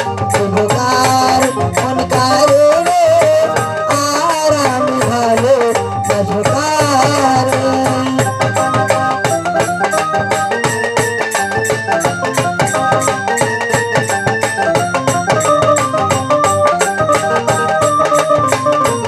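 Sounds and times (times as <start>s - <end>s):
barrel drum beating: 0.0s - 19.0s
keyboard melody and chords: 0.0s - 19.0s.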